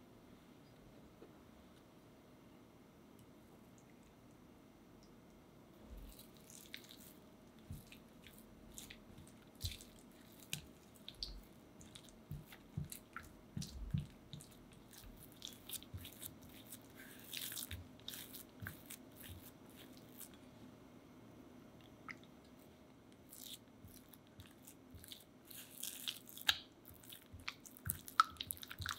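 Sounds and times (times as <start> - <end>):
spatula mixing wet dough: 5.8 - 20.5, 23.2 - 28.9.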